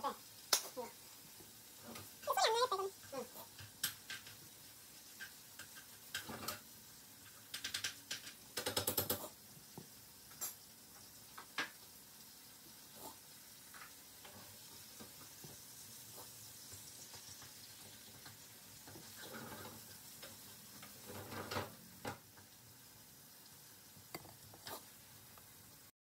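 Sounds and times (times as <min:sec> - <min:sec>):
steady hiss: 0:00.0 - 0:25.9
small clicks and taps: 0:03.5 - 0:04.4, 0:05.1 - 0:06.6, 0:07.3 - 0:10.6.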